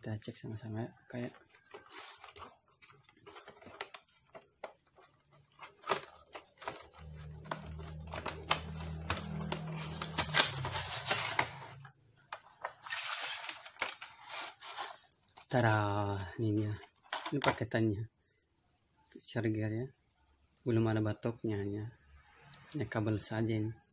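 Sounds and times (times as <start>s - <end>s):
cardboard packaging rustling and clicking: 1.1s - 15.8s
plastic tray rustle: 1.2s - 15.7s.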